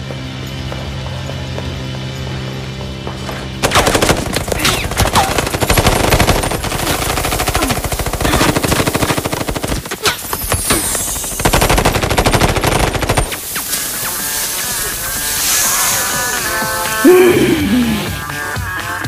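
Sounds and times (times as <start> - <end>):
automatic rifles firing: 3.6 - 13.7.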